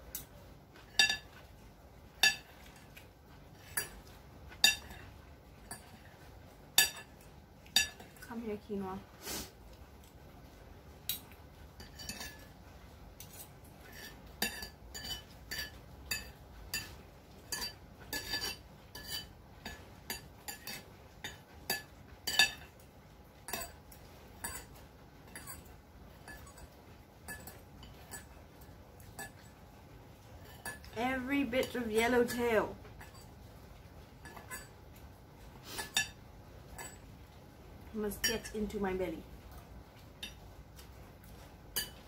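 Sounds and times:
cutlery clinking on a plate: 0.1 - 1.5, 2.2 - 3.0, 3.6 - 6.0, 6.8 - 8.2, 11.1 - 12.5, 13.2 - 22.8, 23.4 - 29.6, 30.4 - 31.0, 33.0 - 33.4, 34.2 - 34.8, 35.7 - 37.0, 41.8 - 42.0.

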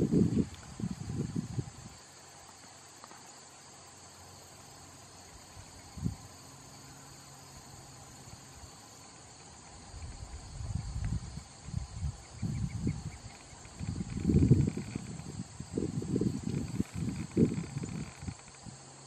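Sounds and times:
insects trilling: 0.0 - 19.0.

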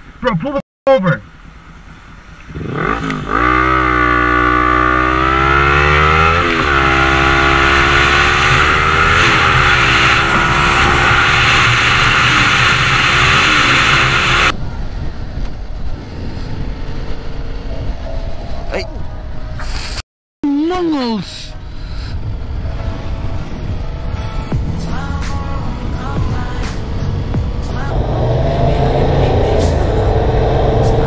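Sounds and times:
motorcycle engine accelerating: 1.2 - 18.7, 25.8 - 31.0
wind on microphone: 14.4 - 20.0.

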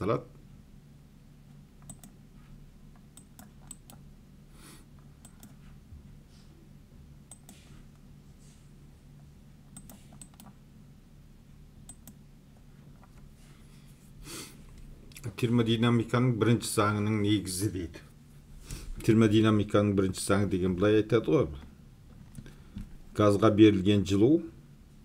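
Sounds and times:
low steady hum: 0.0 - 25.0
mouse and keyboard clicks: 1.8 - 2.2, 9.8 - 10.6.

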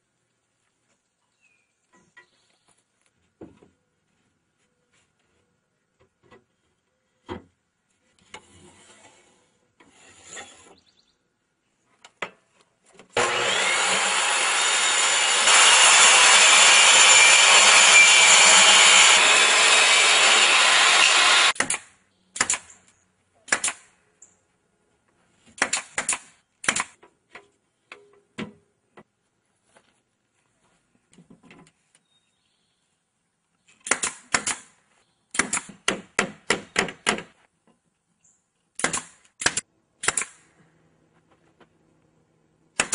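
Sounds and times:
table saw cutting wood: 13.2 - 21.6.

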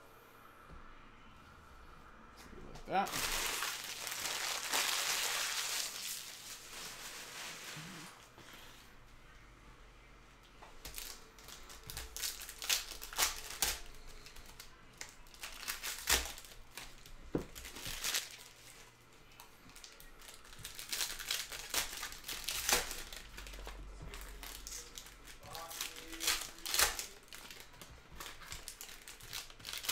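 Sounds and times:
foil wrappers tearing and crinkling: 3.1 - 8.2, 10.8 - 18.9, 19.7 - 29.9.

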